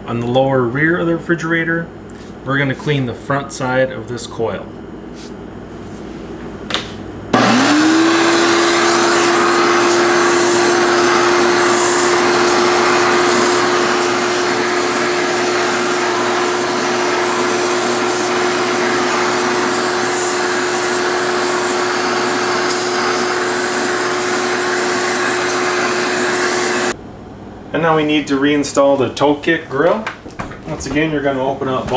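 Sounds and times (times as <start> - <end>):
shop vac motor whining: 7.3 - 27.0.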